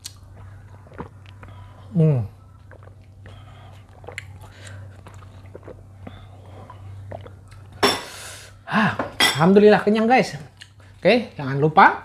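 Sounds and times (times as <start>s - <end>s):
mouth sounds eating and drinking: 0.0s - 8.4s
steady low hum: 0.0s - 12.0s.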